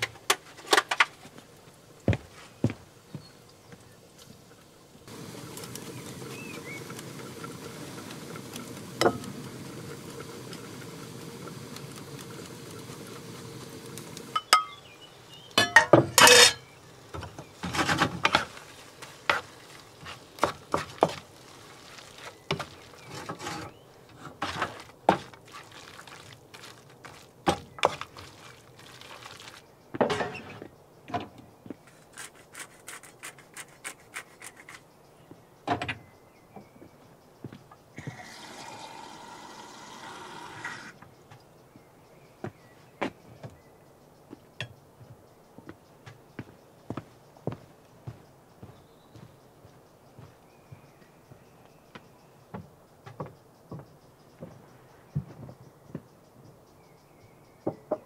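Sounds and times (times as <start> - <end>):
gas burner hiss: 5.0 - 23.8, 38.0 - 41.0
frying pan and utensils clattering: 5.4 - 10.0, 15.5 - 18.7, 30.0 - 30.6
cutlery and dishes clinking: 15.6 - 16.6.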